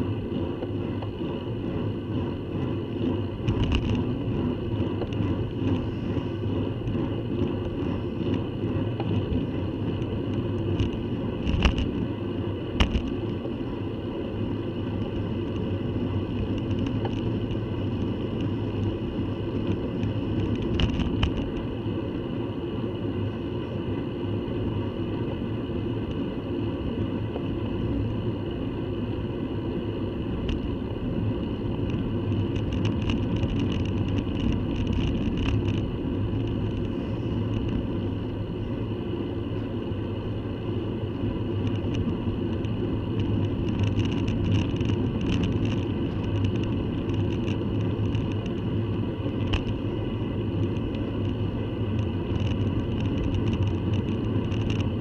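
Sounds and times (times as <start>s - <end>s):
tyres rumbling on tarmac: 0.0s - 55.0s
light clicks and rattles: 3.0s - 4.0s, 31.8s - 38.0s, 41.6s - 48.7s, 50.5s - 55.0s.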